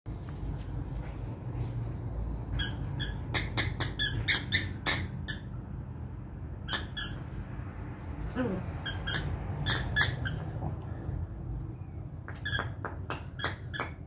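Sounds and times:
squeaky dog toy squeaking: 2.6s - 5.6s, 6.6s - 7.3s, 8.8s - 10.6s, 12.4s - 12.8s, 13.4s - 14.0s.

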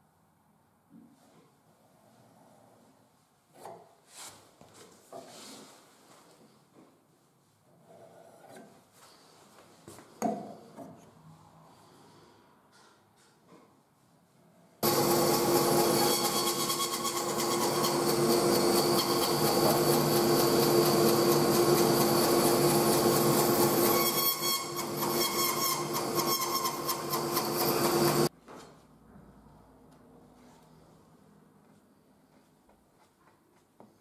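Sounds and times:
bandsaw cutting wood: 14.8s - 28.3s.

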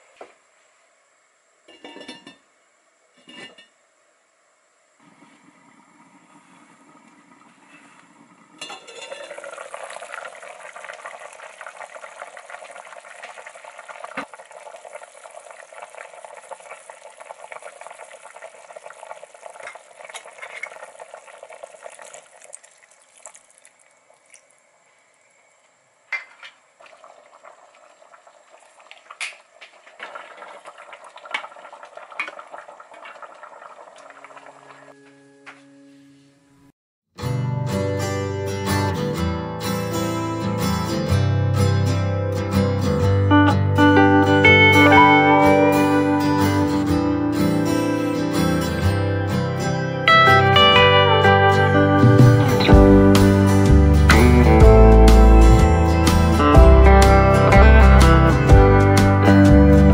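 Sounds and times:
lid clinking onto pot: 1.7s - 2.4s, 8.6s - 9.4s
stew bubbling: 5.0s - 24.7s, 26.3s - 35.0s.

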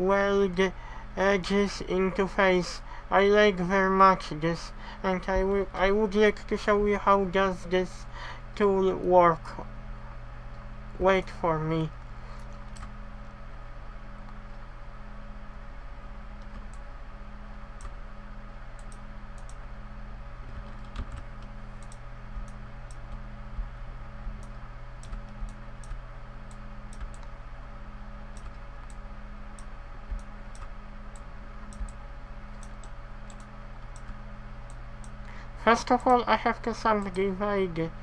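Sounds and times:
steady background hum: 0.0s - 38.0s
computer keyboard keystrokes: 16.4s - 16.8s, 20.5s - 23.7s, 24.4s - 27.3s, 28.3s - 34.2s.

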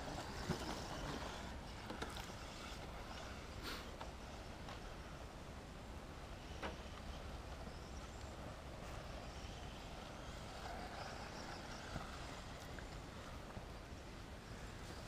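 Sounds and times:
rc car motor whine: 7.6s - 13.5s.

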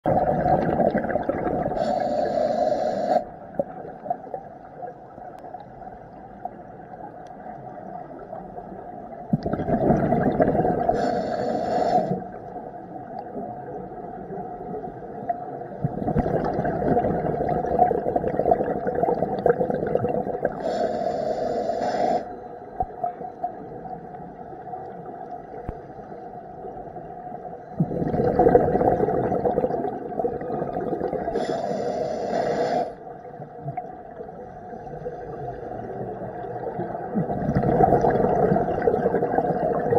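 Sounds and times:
bubbling air from diver's regulator: 0.0s - 4.2s, 9.3s - 12.3s, 15.6s - 23.0s, 27.6s - 32.9s, 35.3s - 39.9s
underwater rumble: 0.0s - 39.9s
high hiss: 1.8s - 3.3s, 11.0s - 12.3s.

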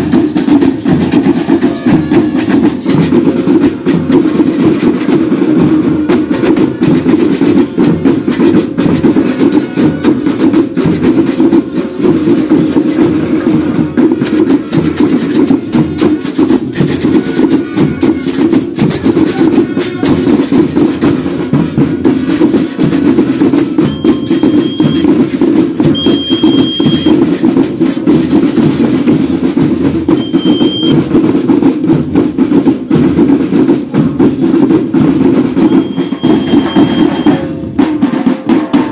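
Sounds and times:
snare and bass drums: 0.0s - 38.9s
short high tones: 23.8s - 25.1s, 25.9s - 27.2s, 30.1s - 31.0s, 35.7s - 37.4s.

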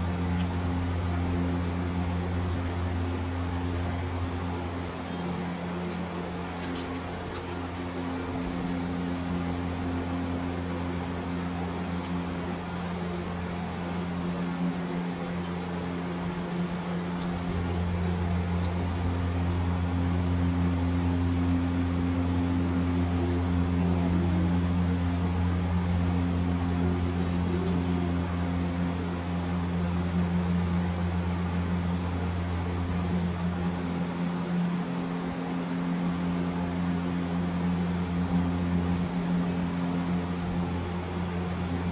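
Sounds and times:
low mechanical hum: 0.0s - 41.9s.

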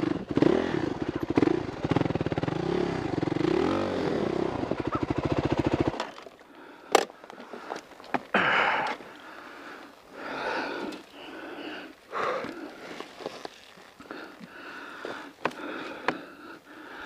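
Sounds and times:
dirt bike engine running: 0.0s - 6.8s
hard breathing: 6.4s - 17.0s.

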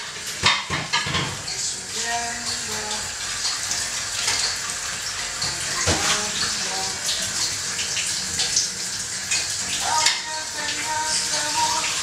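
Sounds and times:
dishes clinking: 0.0s - 1.5s
tap water running into sink: 0.0s - 12.0s.

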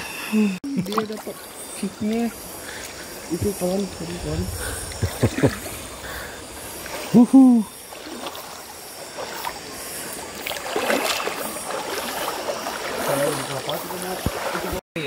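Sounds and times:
river water sloshing and splashing: 0.7s - 14.8s
person exclaiming: 7.2s - 7.7s.

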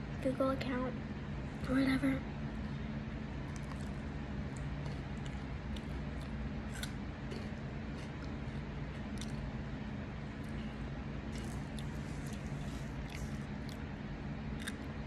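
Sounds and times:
low hum: 0.0s - 15.0s
crunchy snack chewing: 3.4s - 9.6s, 10.4s - 15.0s.

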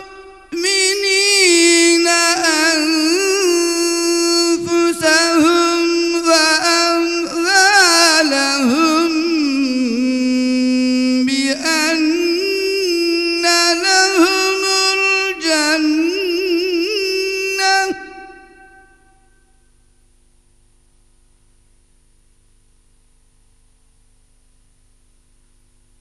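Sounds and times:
man chanting a religious melody: 0.0s - 19.2s.

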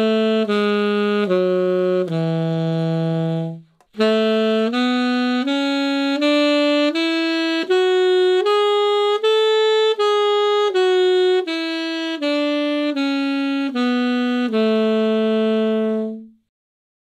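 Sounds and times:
alto saxophone playing a scale: 0.0s - 16.5s.

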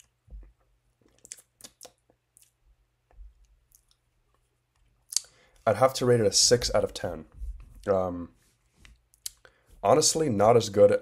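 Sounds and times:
dull low thump: 7.3s - 7.8s.

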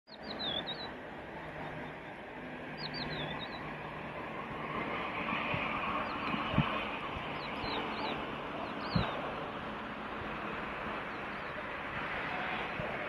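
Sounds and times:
small bird chirping: 0.1s - 0.9s, 2.7s - 3.7s
open-air rumble: 0.1s - 13.0s.

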